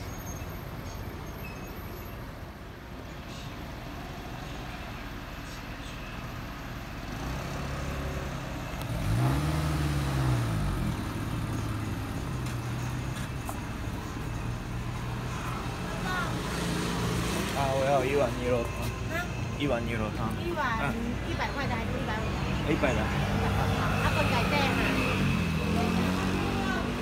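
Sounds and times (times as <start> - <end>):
traffic engine rumble: 0.0 - 27.0
vehicle engine passing: 7.0 - 27.0.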